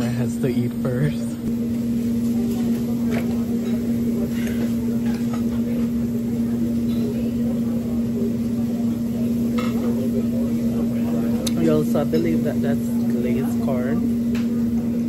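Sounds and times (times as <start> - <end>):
faint murmur of chatter: 0.0 - 15.0
steady low-pitched hum: 0.0 - 15.0.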